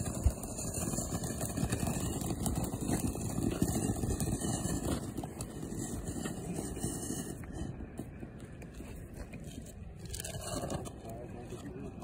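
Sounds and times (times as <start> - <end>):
firework fountain hissing and crackling: 0.0 - 8.4.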